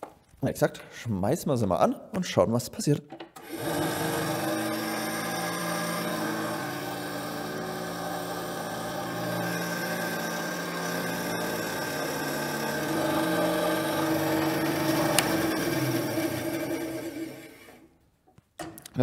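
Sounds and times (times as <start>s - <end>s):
band saw running idle: 3.4s - 17.8s.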